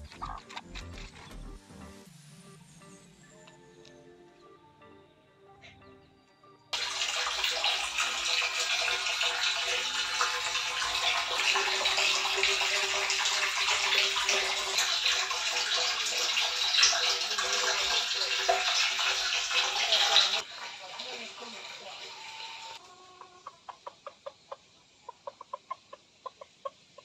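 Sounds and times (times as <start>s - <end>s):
water splashing in a basin: 6.8s - 22.8s.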